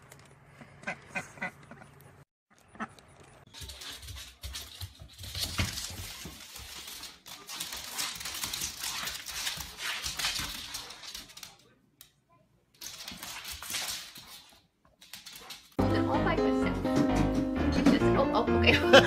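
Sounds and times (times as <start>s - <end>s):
dog claws skidding on wooden floor: 3.5s - 11.6s.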